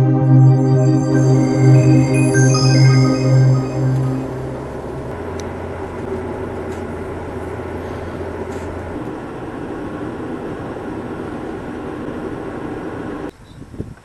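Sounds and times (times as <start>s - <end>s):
car engine hum: 4.5s - 13.0s.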